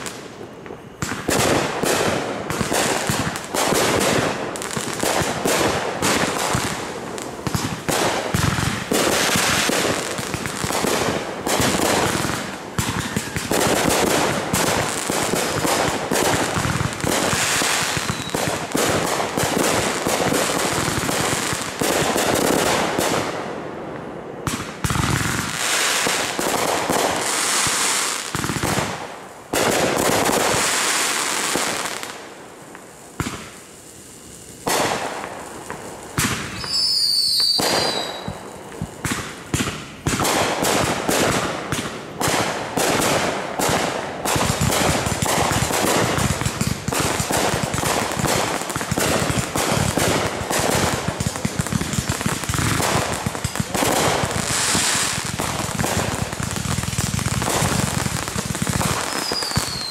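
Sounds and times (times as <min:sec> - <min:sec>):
falling firework whistles: 0:00.0 - 0:22.7, 0:33.2 - 0:40.6, 0:53.8 - 0:59.9
fireworks bangs and crackling: 0:00.0 - 0:59.9.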